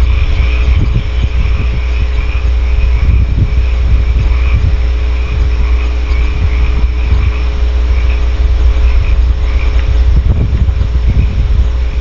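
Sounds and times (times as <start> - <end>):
faint high pulsing chorus: 0.0 - 12.0
low hum and rumble: 0.0 - 12.0.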